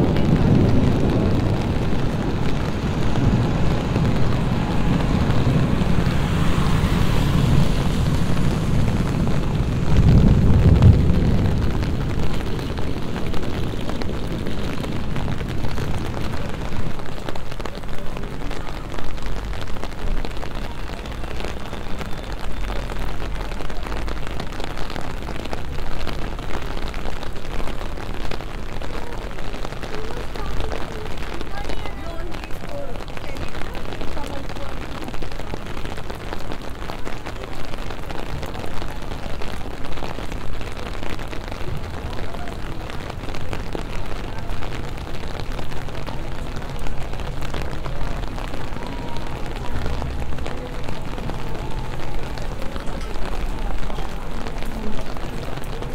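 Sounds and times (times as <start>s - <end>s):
low rumble of thunder: 0.0s - 18.1s
rain on pavement: 0.0s - 55.9s.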